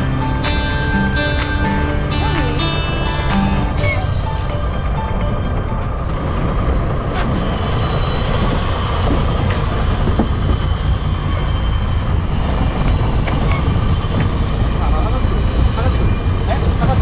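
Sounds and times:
boat engine running: 0.0s - 17.0s.

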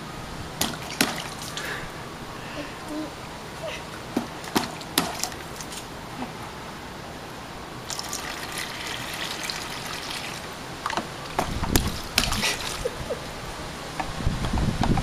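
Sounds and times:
sharp splashes or knocks: 0.6s - 1.7s, 4.2s - 5.9s, 7.8s - 12.9s
water trickling and splashing: 0.6s - 1.9s, 4.2s - 6.1s, 7.7s - 13.2s.

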